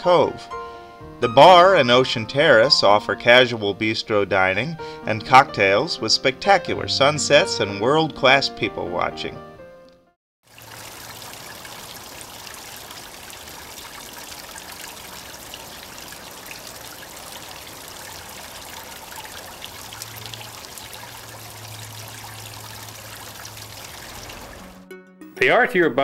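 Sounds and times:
fountain water trickling: 0:10.4 - 0:24.8.

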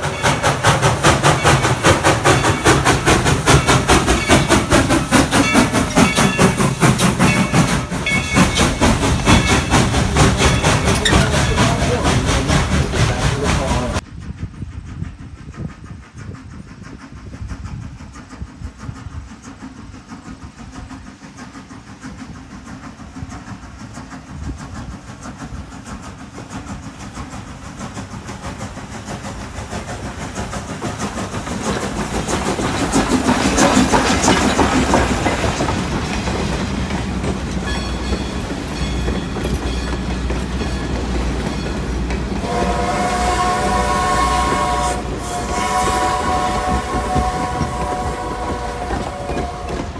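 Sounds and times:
clickety-clack of train wheels: 0:00.0 - 0:49.9
steam locomotive passing: 0:00.0 - 0:49.9
train whistle: 0:42.4 - 0:49.9.

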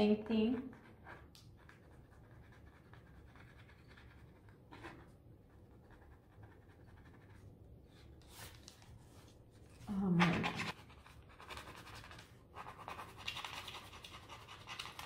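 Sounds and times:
low room hum: 0:00.0 - 0:15.0
toothpick scratching on paper: 0:00.6 - 0:07.5, 0:10.2 - 0:15.0.

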